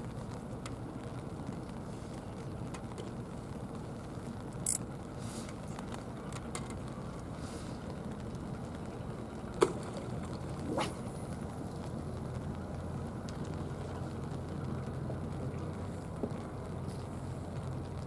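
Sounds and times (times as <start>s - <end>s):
faint ticks: 0.0s - 9.1s, 11.4s - 18.0s
low seaside rumble: 0.0s - 18.0s.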